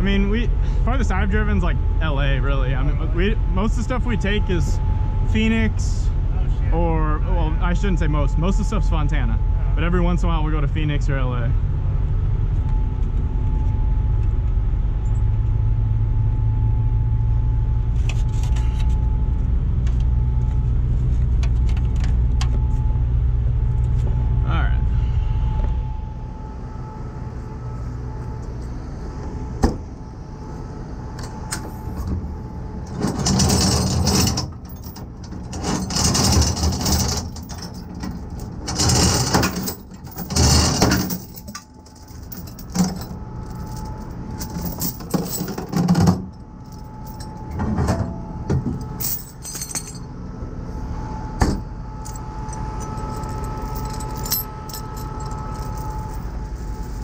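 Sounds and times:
steel chains rattling and clanking: 32.9 - 48.0, 48.7 - 50.1, 51.5 - 57.0.

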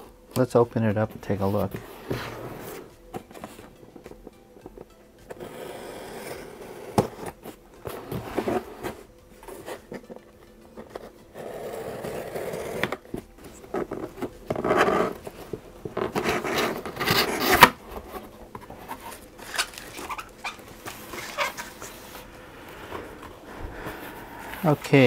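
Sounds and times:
cardboard scraping: 1.4 - 2.9, 5.3 - 10.1, 10.8 - 23.2
packing tape ripping: 16.3 - 17.8, 19.4 - 20.6.

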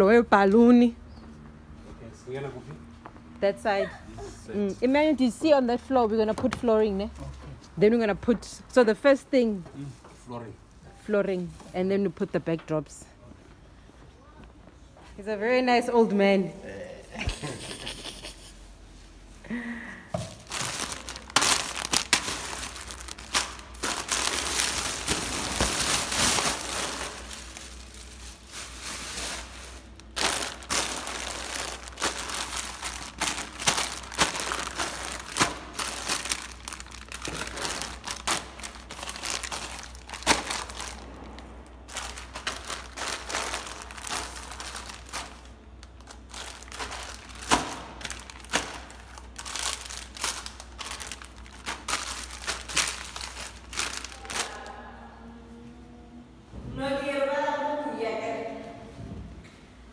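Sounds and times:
crinkling and rustling: 20.3 - 54.7.

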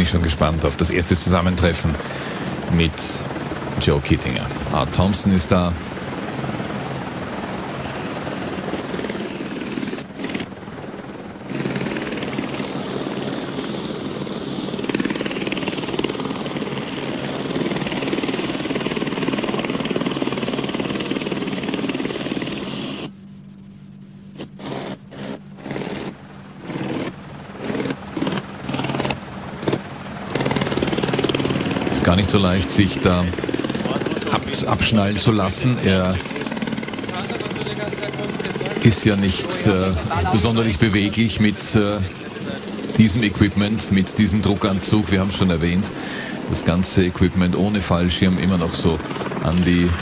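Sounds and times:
helicopter idling: 0.0 - 50.0
short bursts of noise: 22.6 - 31.1.

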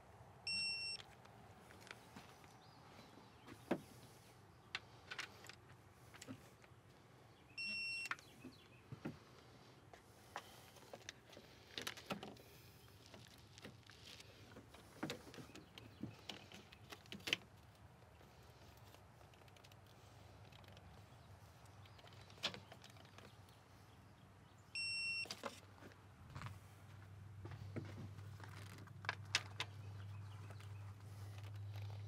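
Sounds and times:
torque wrench beeping: 7.6 - 8.2.

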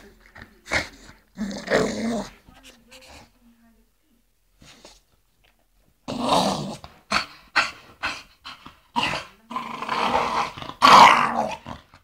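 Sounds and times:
dogs growling: 0.0 - 2.5, 6.0 - 12.0.

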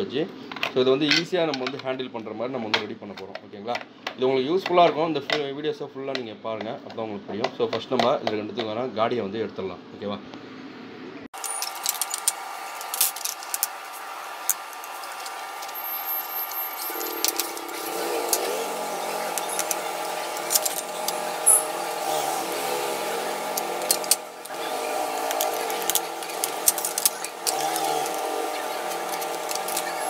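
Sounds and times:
hacksaw sawing plastic: 11.4 - 30.0.

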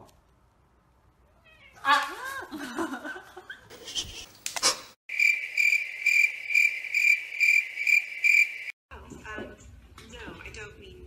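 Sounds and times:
crickets chirping: 5.1 - 8.8.

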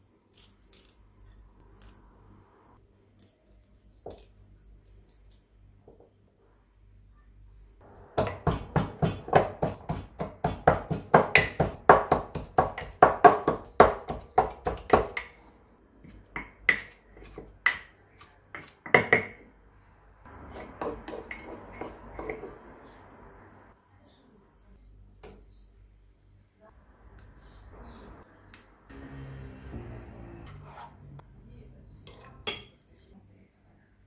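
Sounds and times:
pestle pounding in wooden mortar: 8.2 - 15.4.

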